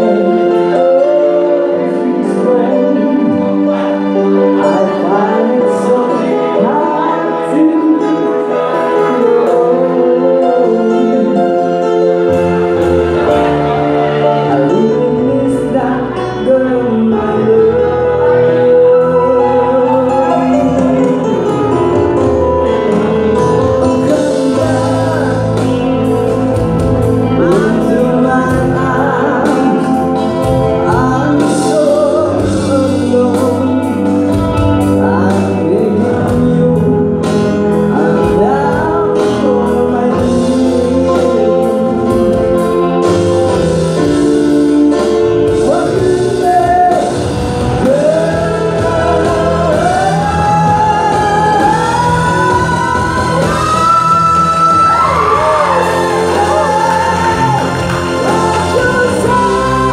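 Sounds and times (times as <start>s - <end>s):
live band with electric guitar: 0.0s - 59.9s
man singing into microphone: 0.0s - 59.9s.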